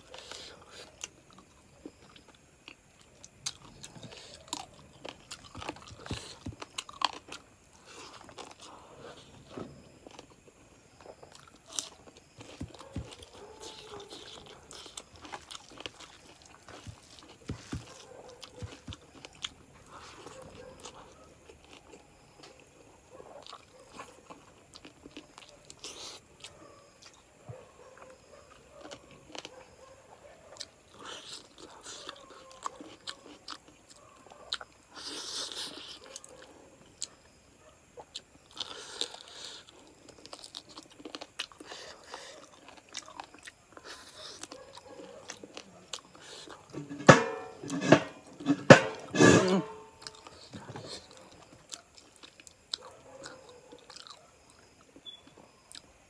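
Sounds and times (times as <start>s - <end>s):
person chewing food: 0.0s - 29.9s, 30.5s - 37.1s, 38.0s - 56.0s.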